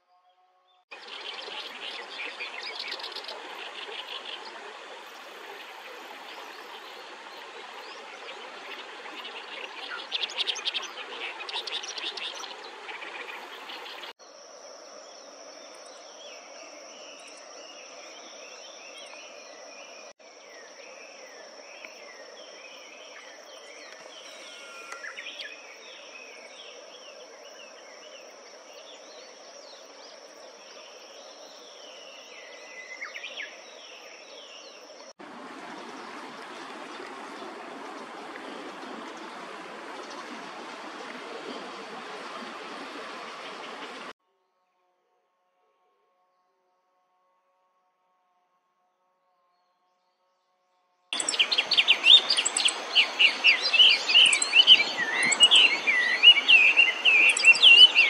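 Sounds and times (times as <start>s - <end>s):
songbirds singing: 15.1s - 35.1s, 51.2s - 58.0s
background hiss: 51.2s - 58.0s.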